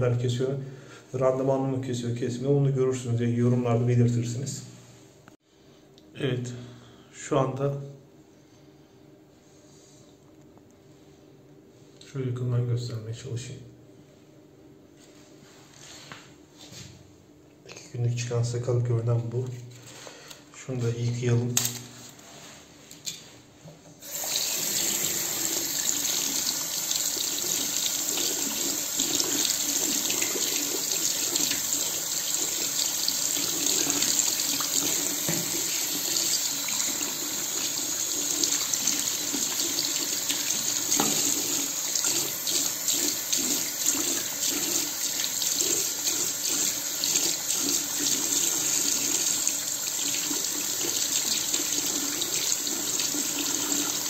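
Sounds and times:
tap water running into sink: 24.0s - 54.0s.

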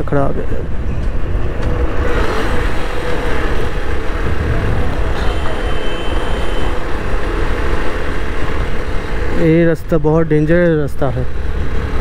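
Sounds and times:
wind on microphone: 0.6s - 5.6s
motorcycle engine: 0.7s - 9.8s.

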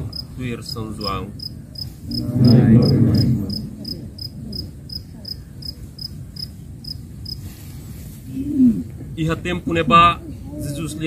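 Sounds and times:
cricket chirping: 0.0s - 7.4s
low indistinct sound: 1.9s - 4.8s.

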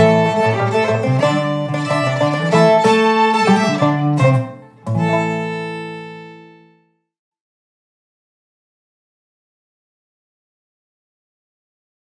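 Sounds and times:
acoustic string band playing: 0.0s - 6.7s.

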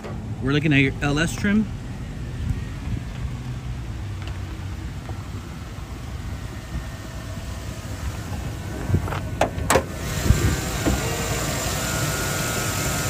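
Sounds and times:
truck engine idling: 0.0s - 13.0s
car hood latch clicks and squeaks: 9.1s - 9.9s.

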